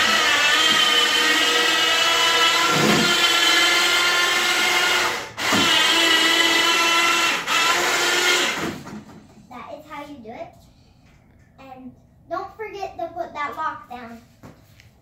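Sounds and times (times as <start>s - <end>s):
electric motor whining: 0.0s - 8.8s.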